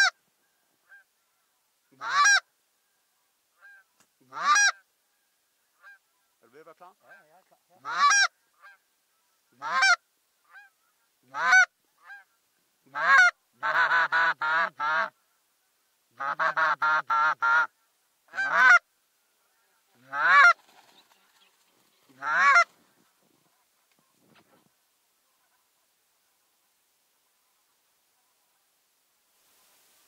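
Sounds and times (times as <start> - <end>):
goose honking: 0.8 - 2.4, 3.6 - 4.9, 7.0 - 15.2, 16.2 - 18.8, 19.4 - 20.6, 22.1 - 22.8.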